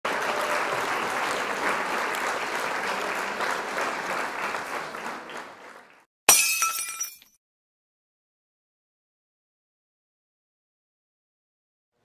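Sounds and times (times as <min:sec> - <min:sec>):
people applauding: 0:00.0 - 0:06.1.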